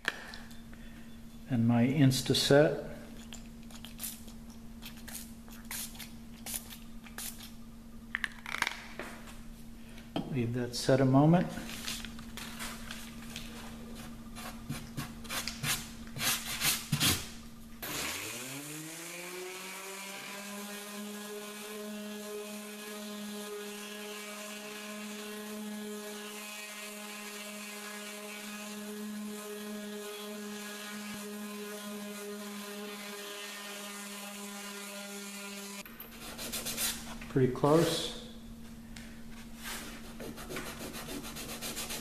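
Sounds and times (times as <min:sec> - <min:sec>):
orbital sander sanding wood: 0:13.8 - 0:37.1, 0:39.4 - 0:42.0.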